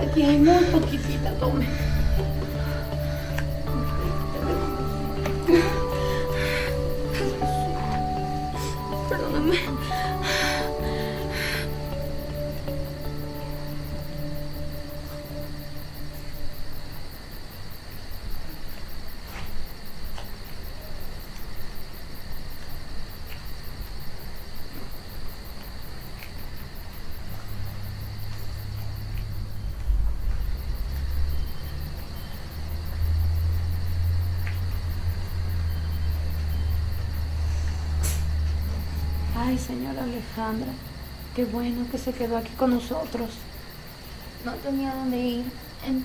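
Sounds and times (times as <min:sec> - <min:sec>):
crickets chirping: 0:00.0 - 0:46.0
low droning rumble: 0:27.7 - 0:41.4.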